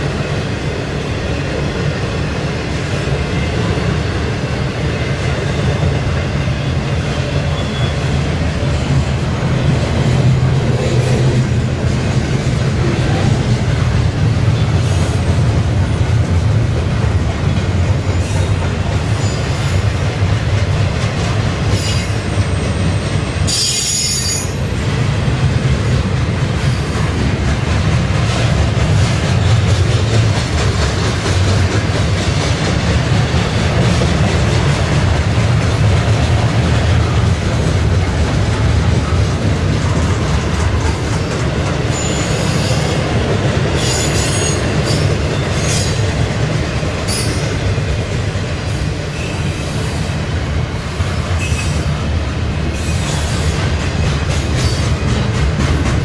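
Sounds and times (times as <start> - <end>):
train wheels rumbling on rail: 0.0 - 56.0
high-pitched wheel squeal: 7.4 - 8.1.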